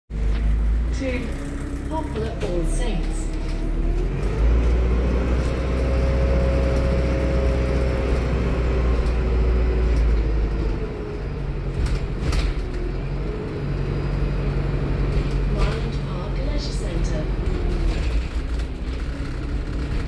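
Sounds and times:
bus engine droning: 0.1 - 20.0
faint engine whine: 0.1 - 20.0
sharp clicks and rattles: 15.1 - 20.0.

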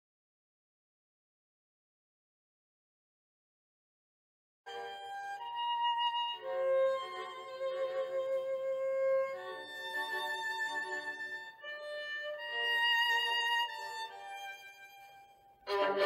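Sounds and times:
slow violin melody: 4.7 - 16.0.

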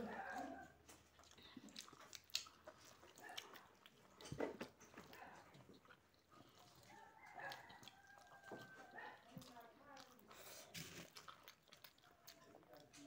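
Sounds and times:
person chewing: 0.1 - 13.0.

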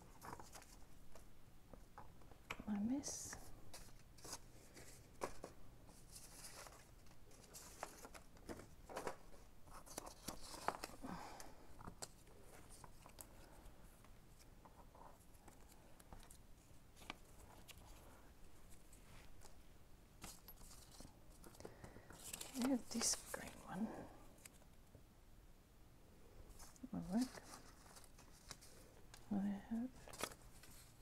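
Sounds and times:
paper rustling: 0.0 - 1.3, 3.4 - 13.7, 17.0 - 19.6, 20.2 - 23.8, 26.5 - 29.2, 29.9 - 31.0.

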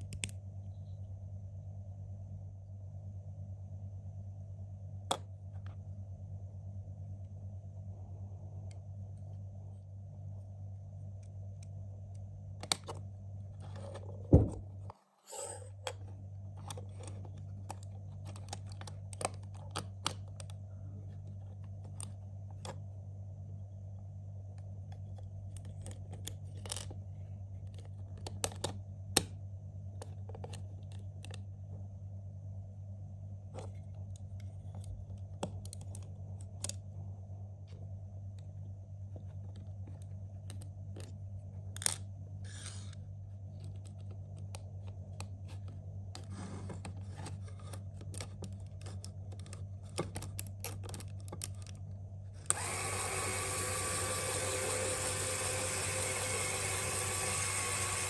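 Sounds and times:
low hum: 0.0 - 58.0
plastic parts clicking and snapping: 15.8 - 20.6, 24.9 - 27.0, 27.6 - 29.4, 33.6 - 36.8, 43.6 - 58.0.

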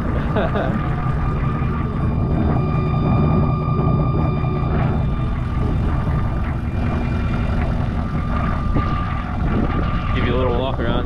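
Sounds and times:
diesel engine rumble: 0.0 - 11.0
high-pitched turbocharger whistle: 0.8 - 11.0.

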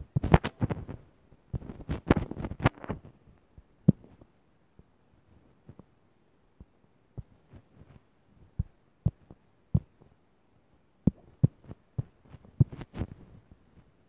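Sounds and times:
fingertips tapping touchscreen: 6.6 - 10.1.

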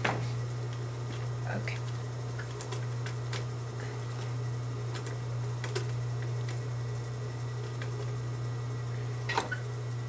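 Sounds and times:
low motor hum: 0.0 - 10.0.

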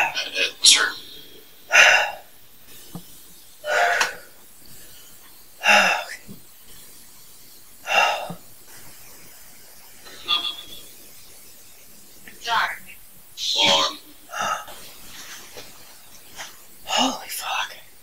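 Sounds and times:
faint background hiss: 0.0 - 18.0
breathy vocal outbursts: 1.7 - 2.3, 3.6 - 4.4, 5.6 - 6.2, 7.8 - 8.4.

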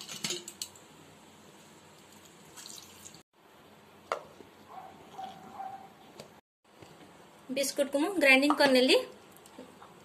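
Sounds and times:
water trickling into steel bowl: 2.0 - 3.2.

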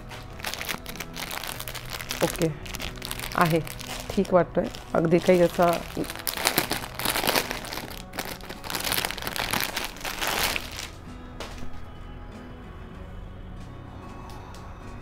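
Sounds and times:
plastic bag crinkling: 0.0 - 11.0
faint background music: 0.0 - 15.0.

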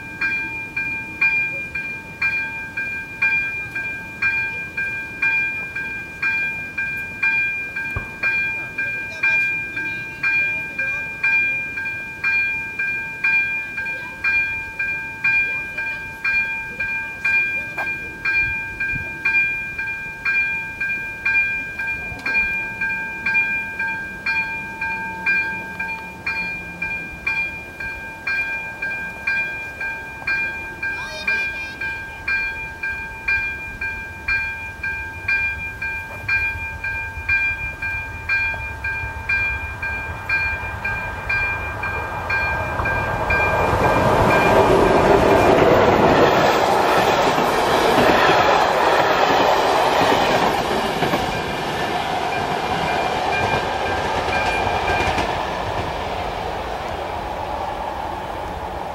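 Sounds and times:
level crossing bell chiming: 0.0 - 43.6
passenger train passing: 0.0 - 58.9.

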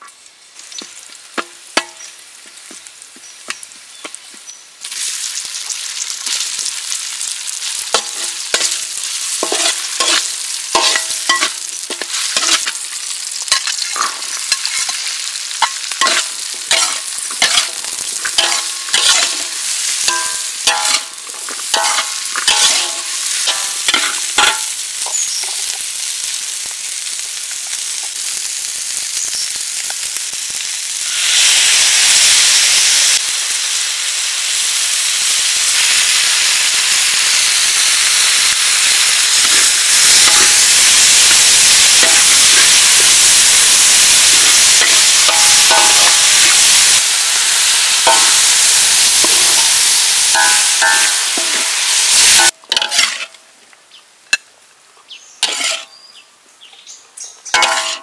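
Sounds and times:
vegetables sizzling in wok: 0.0 - 53.6, 55.2 - 58.0
metal spatula clanking on wok: 9.4 - 12.7, 15.6 - 17.8, 18.4 - 25.7, 50.4 - 51.6, 52.4 - 53.4, 55.4 - 55.9, 57.6 - 58.0.

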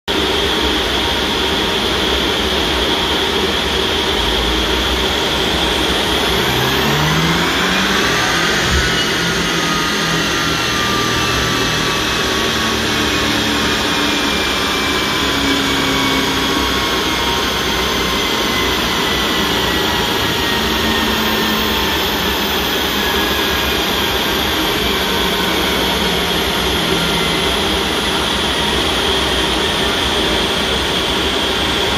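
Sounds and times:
loud fan-like rush: 0.2 - 31.9
car engine on rolling road: 4.1 - 31.9
whine climbing sharply: 5.1 - 29.8.

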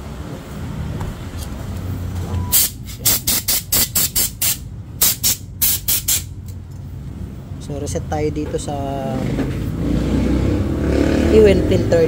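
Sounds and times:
low steady rumble: 0.0 - 9.8
air blow gun hissing blasts: 2.5 - 6.4.

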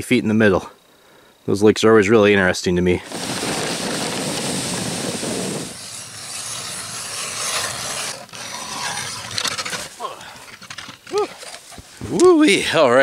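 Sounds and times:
sled dragged through snow: 3.0 - 10.8
ice auger scraping ice: 3.1 - 11.7.

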